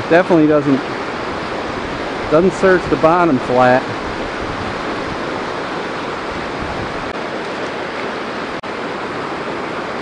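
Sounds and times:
river rapids rushing over rocks: 0.0s - 10.0s.

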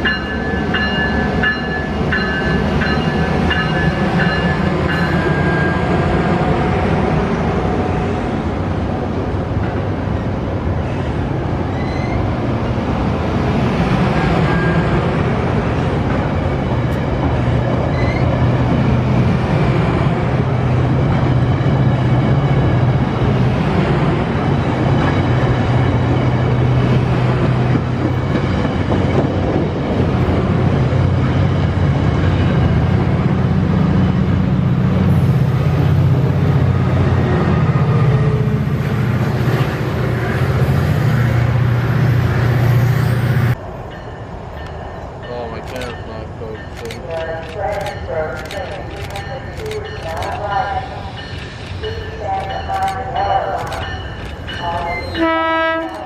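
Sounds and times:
train rolling past: 0.0s - 56.0s.

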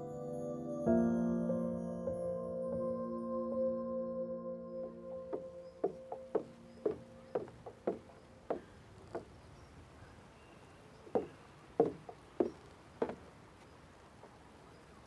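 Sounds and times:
footsteps on wooden footbridge: 5.1s - 9.6s, 11.0s - 14.4s.

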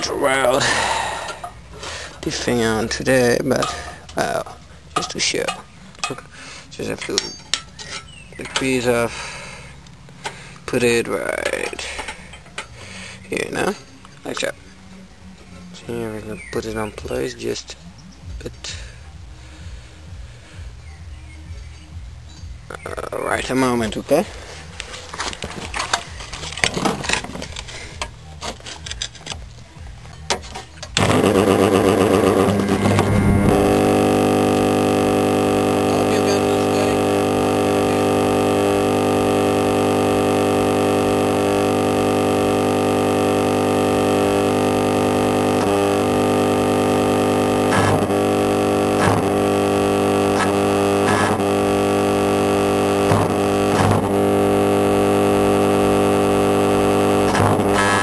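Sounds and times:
clicks and handling noises: 24.8s - 31.1s
welding machine humming: 31.0s - 58.0s.

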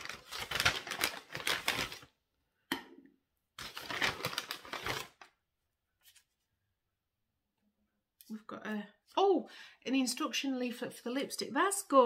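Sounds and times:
paper and packaging crinkling: 0.0s - 2.1s, 3.6s - 5.3s.

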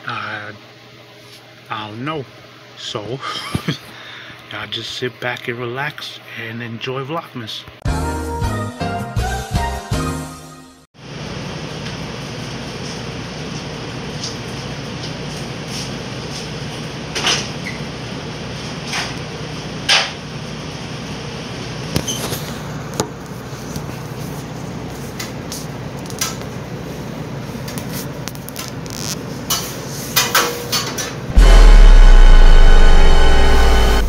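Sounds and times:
room machinery humming: 11.0s - 30.2s, 31.1s - 34.0s.

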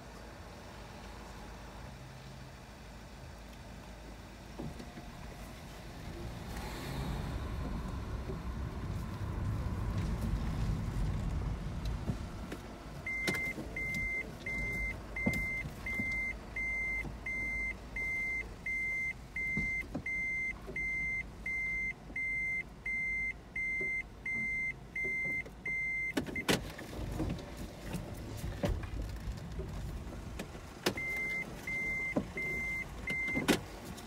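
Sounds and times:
car interior rumble: 0.0s - 34.0s
electronic warning beep: 13.1s - 26.2s, 31.0s - 33.5s.

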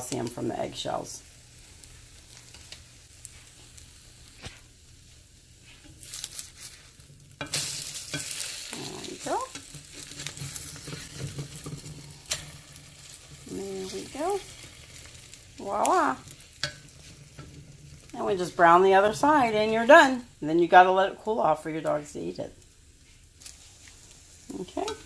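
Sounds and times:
french toast sizzling: 0.0s - 25.0s.

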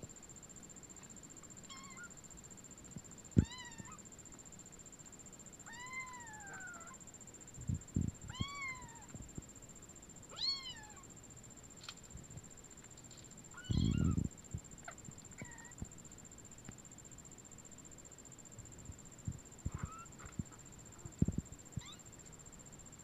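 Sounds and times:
kittens mewing: 5.7s - 7.0s, 13.6s - 14.2s, 19.7s - 20.3s.

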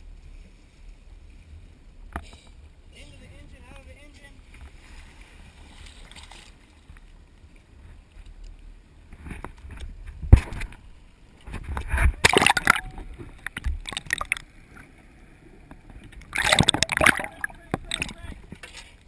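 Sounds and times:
water splashing over camera: 11.4s - 14.9s, 15.7s - 18.8s.

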